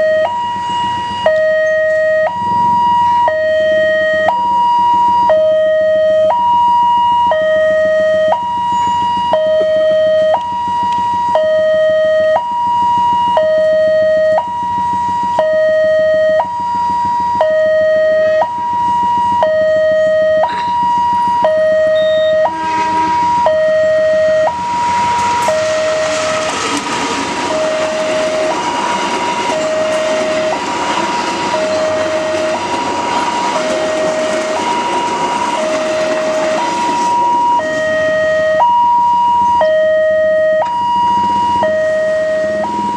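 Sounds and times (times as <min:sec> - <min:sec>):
level-crossing two-tone alarm chime: 0:00.0 - 0:26.6, 0:27.5 - 0:42.9
train wheels on rails: 0:20.2 - 0:39.6, 0:40.6 - 0:42.9.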